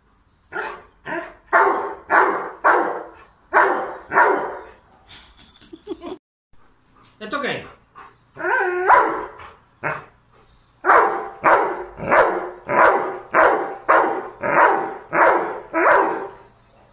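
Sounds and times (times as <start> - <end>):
dog barking: 0.6 - 4.8, 8.8 - 10.1, 10.8 - 16.9
dog whining: 8.4 - 9.3.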